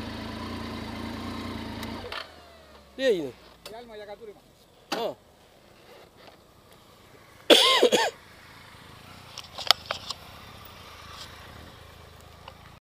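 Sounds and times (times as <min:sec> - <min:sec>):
motorcycle engine idling: 0:00.0 - 0:03.9, 0:06.4 - 0:12.8.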